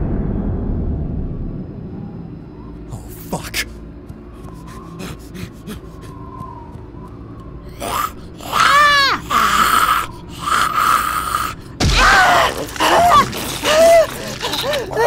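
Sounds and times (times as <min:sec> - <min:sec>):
rasping zombie snarls: 0:07.8 - 0:15.0
woman screaming: 0:08.4 - 0:09.9, 0:11.8 - 0:15.0
woman crying in pain: 0:11.8 - 0:15.0.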